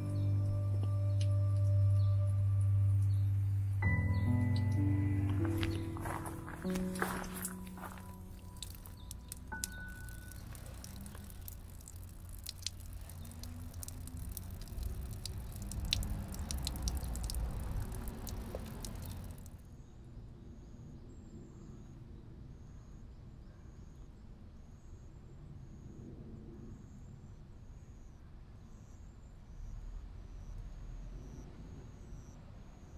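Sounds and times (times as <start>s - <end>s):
faint high chirp: 0.0s - 11.5s
water trickling over rocks: 3.8s - 19.6s
water drops splashing: 4.5s - 19.6s.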